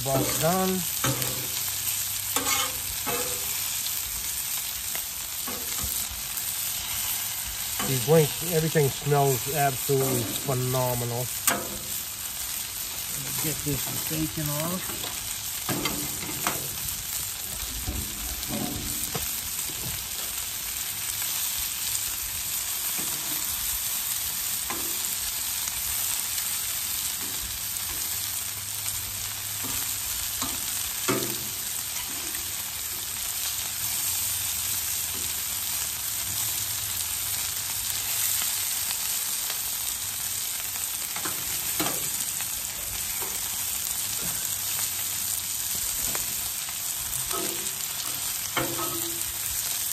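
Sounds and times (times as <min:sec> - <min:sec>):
sausage and bacon sizzling: 0:00.0 - 0:49.9
metal tongs clicking on griddle: 0:01.0 - 0:01.6, 0:41.2 - 0:42.1, 0:47.3 - 0:49.3.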